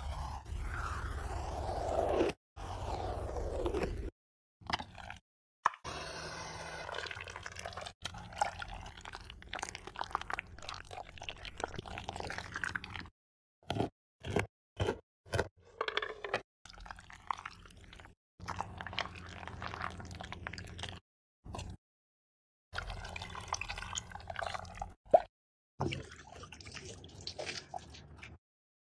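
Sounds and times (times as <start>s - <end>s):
hand blender churning juice: 5.7s - 12.5s.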